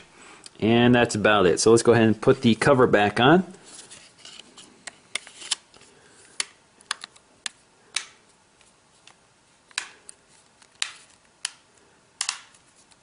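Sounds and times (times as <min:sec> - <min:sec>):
phone cover clips snapping: 0:12.2 - 0:12.6.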